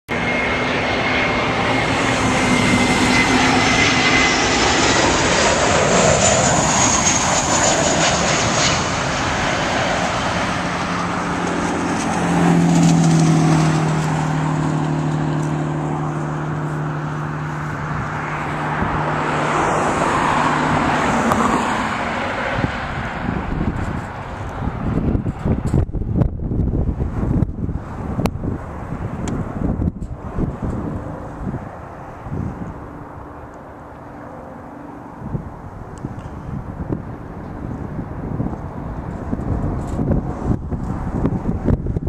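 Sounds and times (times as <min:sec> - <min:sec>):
jet engines roaring: 0:00.1 - 0:42.0.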